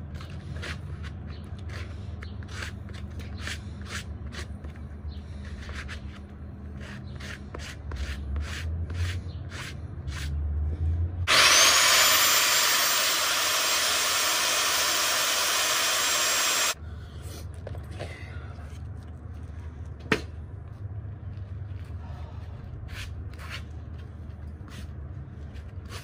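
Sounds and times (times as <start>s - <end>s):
power saw cutting: 11.3s - 16.8s.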